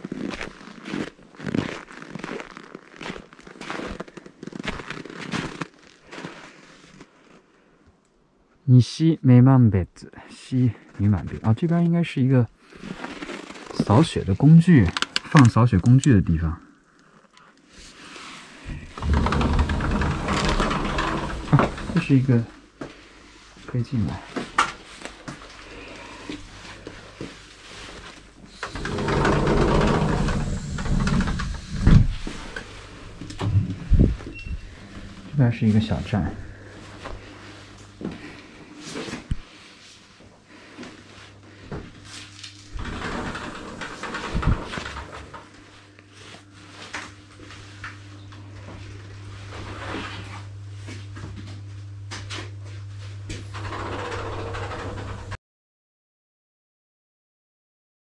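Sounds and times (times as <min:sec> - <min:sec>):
low room hum: 0:00.0 - 0:55.4
door rattling and rumbling: 0:18.7 - 0:22.3, 0:28.5 - 0:35.3, 0:42.7 - 0:45.5, 0:53.4 - 0:55.4
breathy sounds: 0:25.6 - 0:26.9.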